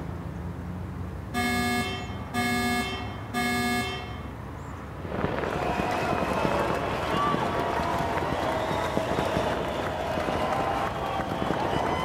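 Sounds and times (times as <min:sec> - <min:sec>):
electronic beeps: 0:01.4 - 0:04.2.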